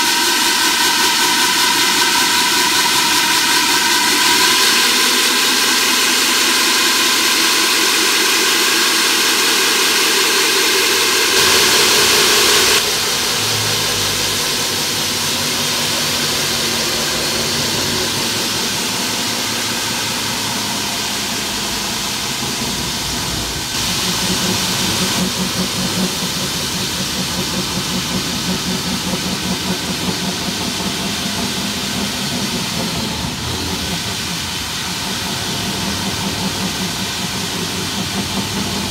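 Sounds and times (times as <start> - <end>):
core drill boring through wall: 0.0 - 38.9.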